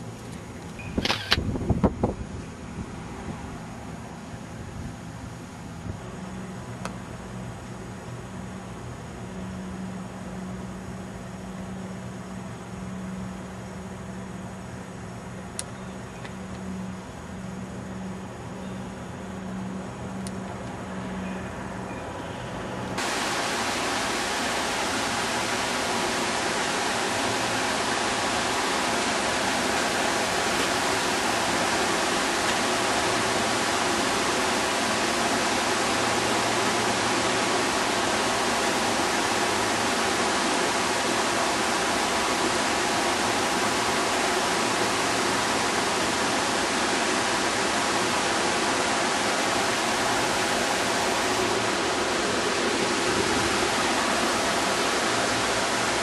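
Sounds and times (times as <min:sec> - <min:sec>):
fountain splashing: 0:23.0 - 0:56.0.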